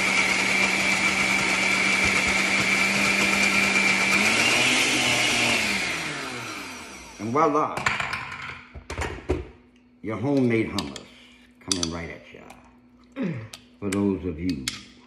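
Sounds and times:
blender motor whining: 0:00.0 - 0:07.6.

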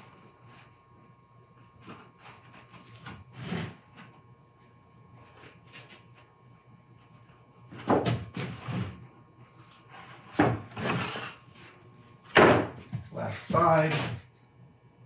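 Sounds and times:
boxes scraping on table: 0:02.1 - 0:03.9, 0:08.4 - 0:09.0, 0:09.7 - 0:11.8
hollow knocks of boxes: 0:07.7 - 0:09.0, 0:12.3 - 0:13.1.

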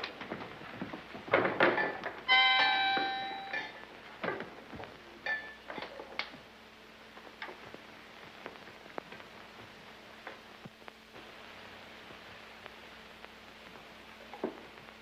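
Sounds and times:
harmonica chords: 0:02.3 - 0:03.7
faint hiss: 0:04.8 - 0:15.0.

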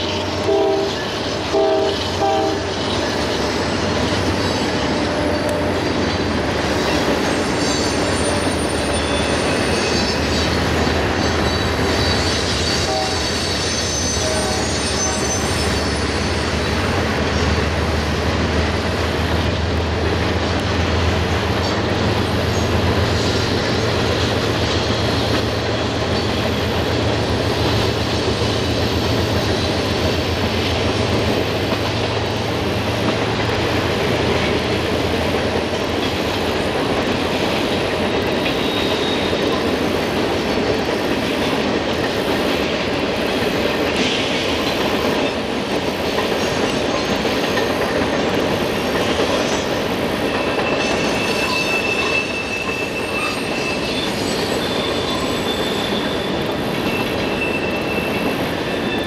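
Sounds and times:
high wheel squeal: 0:00.0 - 0:16.8, 0:38.4 - 0:39.7, 0:49.2 - 0:59.0
freight train wheels rumbling: 0:00.0 - 0:59.0.

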